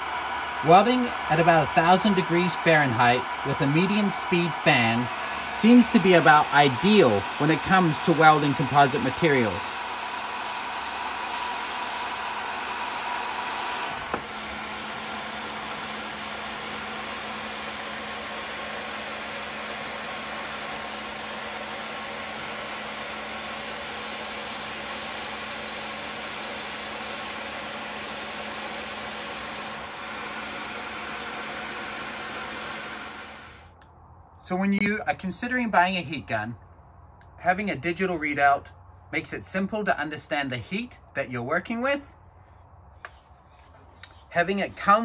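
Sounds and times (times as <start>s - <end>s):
heat gun blowing: 0.0s - 33.8s.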